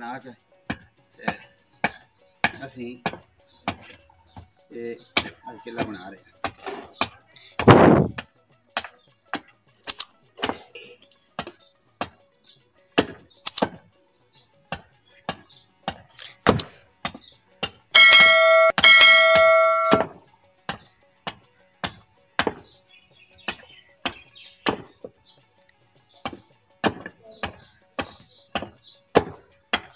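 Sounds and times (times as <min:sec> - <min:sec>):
hatchet chopping wood: 0:00.6 - 0:04.5, 0:05.1 - 0:09.5, 0:10.4 - 0:10.7, 0:11.4 - 0:12.2, 0:13.0 - 0:13.9, 0:14.7 - 0:17.9, 0:18.8 - 0:22.8, 0:23.4 - 0:25.2, 0:26.2 - 0:29.9
loud ringing chime: 0:18.0 - 0:20.1.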